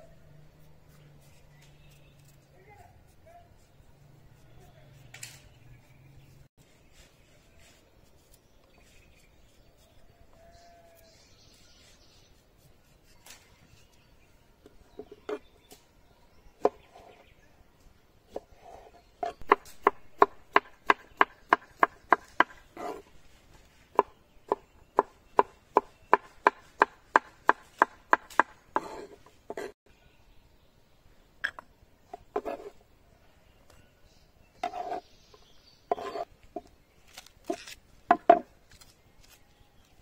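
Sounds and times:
knife scrape: 22.8 - 23.1, 28.8 - 29.8, 32.3 - 32.8, 34.6 - 35.1, 35.9 - 36.3, 37.2 - 37.8
knife chopping on wooden board: 24.0 - 29.8, 35.9 - 36.2.

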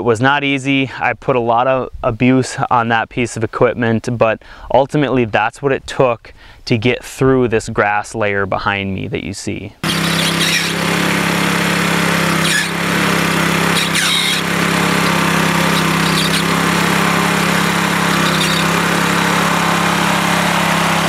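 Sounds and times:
garden tiller engine running: 9.8 - 21.0.

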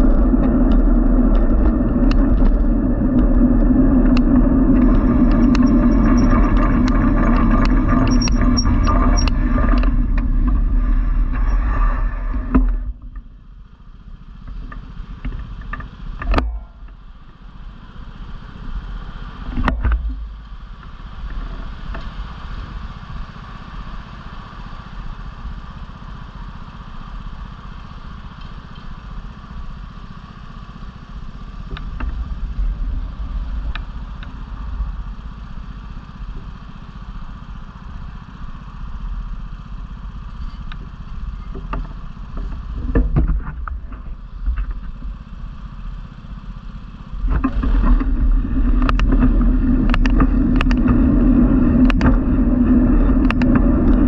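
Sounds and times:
small rattles: 0.0 - 13.5
street traffic hum: 0.0 - 54.0
vehicle road rumble: 0.0 - 54.0.

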